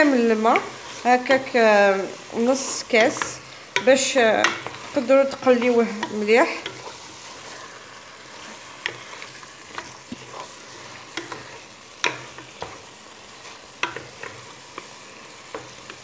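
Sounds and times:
food sizzling in a pot: 0.0s - 16.0s
wooden spoon knocking and scraping: 2.9s - 7.2s, 8.4s - 14.9s.

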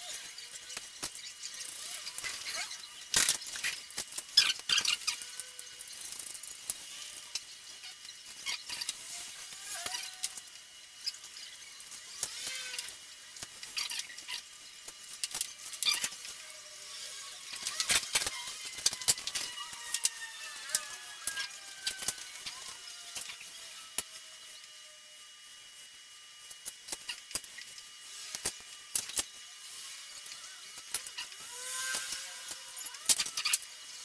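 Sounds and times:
plastic squeaks: 0.1s - 6.2s, 9.6s - 10.4s, 15.3s - 16.4s.

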